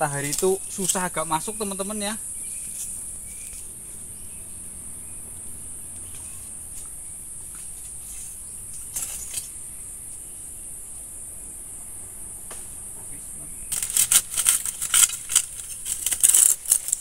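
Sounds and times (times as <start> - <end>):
crackling rustle: 0.0 - 4.1, 5.4 - 10.3, 12.5 - 17.0
insects shrilling: 0.0 - 17.0.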